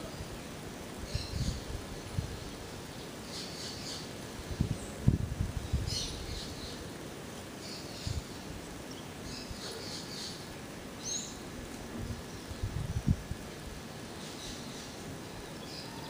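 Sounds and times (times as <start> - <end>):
wind gusts on microphone: 0.0 - 3.0, 4.2 - 6.7, 11.5 - 14.0
small birds chirping: 0.0 - 16.0
steady hiss: 0.0 - 16.0.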